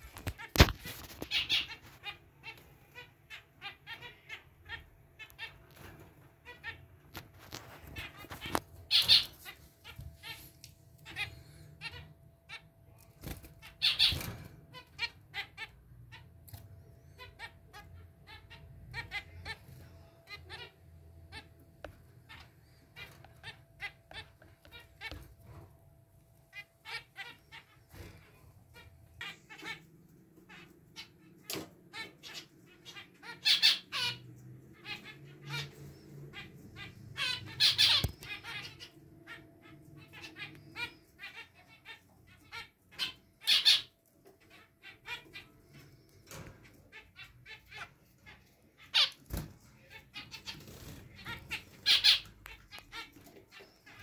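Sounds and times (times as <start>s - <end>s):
finches calling: 8.0s - 10.4s, 34.8s - 46.2s, 49.8s - 54.0s.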